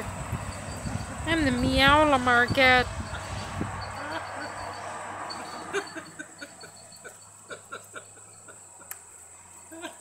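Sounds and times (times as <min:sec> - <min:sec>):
puppies yipping and grunting: 0:03.1 - 0:08.9.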